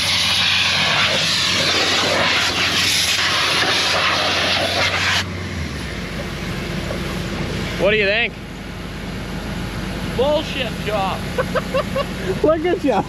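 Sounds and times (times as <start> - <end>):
compressed air hose hissing: 0.0 - 5.3
engine running: 0.0 - 13.0.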